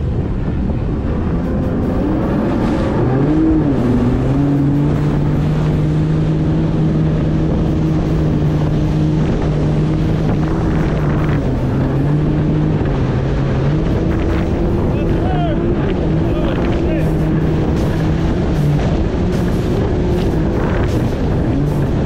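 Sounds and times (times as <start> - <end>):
jet ski engine drone: 0.0 - 22.0
wind on microphone: 0.0 - 22.0
spray rushing: 13.9 - 22.0.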